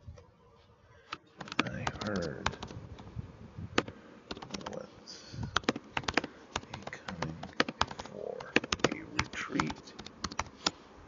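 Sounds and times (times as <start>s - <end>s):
computer keyboard typing: 1.4s - 2.7s, 3.8s - 4.8s, 5.6s - 10.5s.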